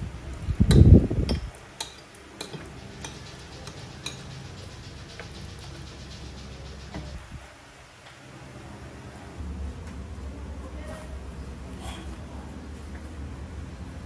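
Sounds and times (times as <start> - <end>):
cutlery clinking on a plate: 0.8 - 4.4.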